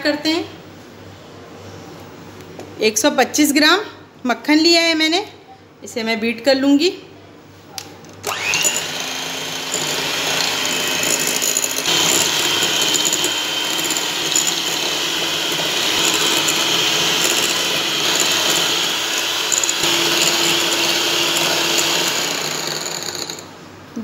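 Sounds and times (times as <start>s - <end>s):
electric mixer running: 8.2s - 23.6s.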